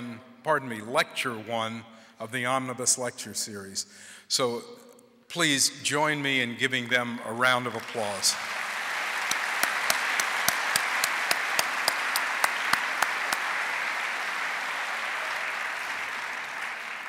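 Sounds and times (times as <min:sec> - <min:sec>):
audience applauding: 0:07.6 - 0:17.0
close hand claps: 0:07.6 - 0:17.0.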